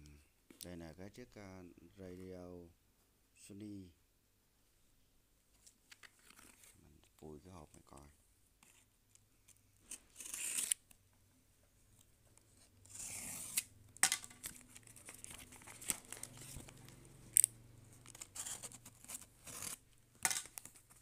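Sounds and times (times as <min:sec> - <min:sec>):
tape tearing and crinkling: 0:09.8 - 0:10.8, 0:12.8 - 0:21.0
knife slicing packing tape: 0:10.1 - 0:10.8, 0:12.9 - 0:13.7, 0:18.1 - 0:20.7.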